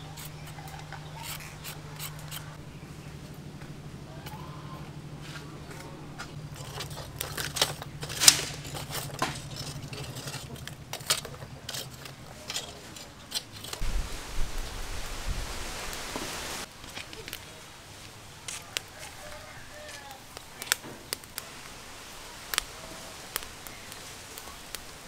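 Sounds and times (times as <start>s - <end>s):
steady low hum: 0.0s - 16.8s
charcoal fire crackling: 0.0s - 25.0s
steady hiss: 13.8s - 25.0s.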